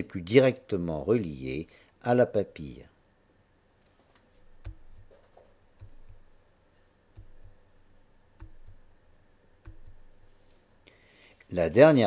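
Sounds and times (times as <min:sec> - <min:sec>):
faint clicks and soft knocks: 0:03.8 - 0:07.7, 0:09.6 - 0:10.7.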